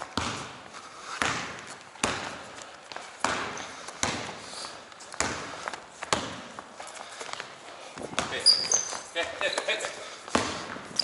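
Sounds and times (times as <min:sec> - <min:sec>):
basketball bouncing on gym floor: 0:00.0 - 0:02.6, 0:03.2 - 0:06.6, 0:08.0 - 0:09.4, 0:10.3 - 0:11.0.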